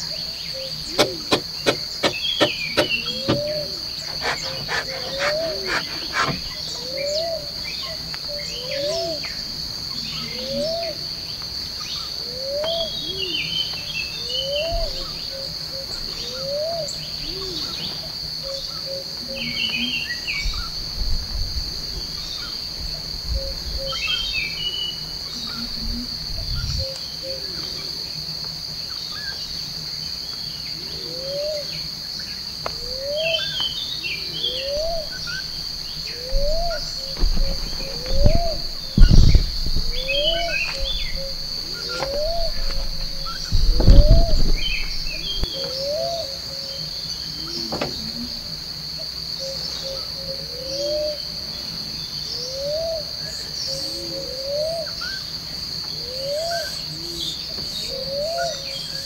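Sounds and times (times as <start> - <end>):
high insect drone: 0.0 - 59.0
bird chirps: 0.6 - 7.4, 33.1 - 46.3
low thuds: 0.9 - 6.6, 35.6 - 45.5
low rising animal call: 2.5 - 6.6.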